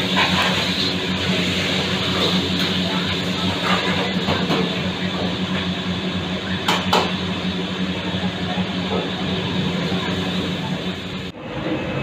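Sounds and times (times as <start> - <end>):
gas burners and fan humming: 0.0 - 12.0.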